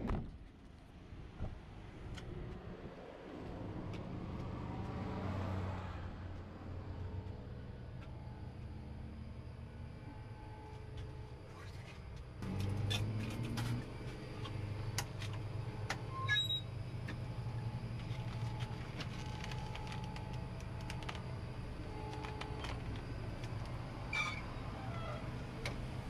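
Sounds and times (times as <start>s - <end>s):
steady low hum: 6.0s - 26.0s.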